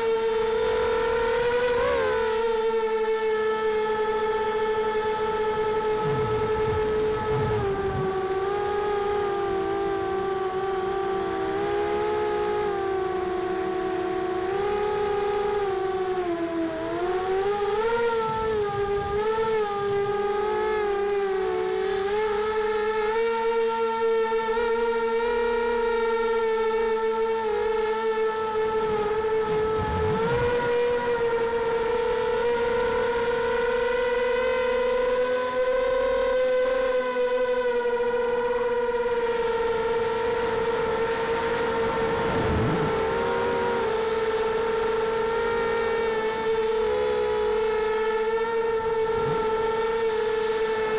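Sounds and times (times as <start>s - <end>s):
drone motors and propellers whining: 0.0s - 50.9s
low rumble: 5.7s - 8.5s, 28.7s - 31.6s, 39.9s - 44.8s.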